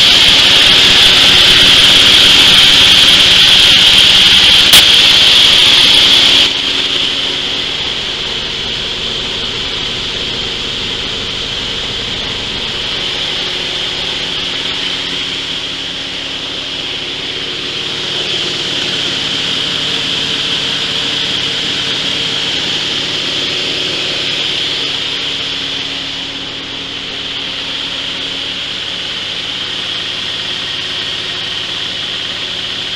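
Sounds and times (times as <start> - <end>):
coffee huller hissing grind: 0.0 - 6.6
diesel engine hum: 0.0 - 32.9.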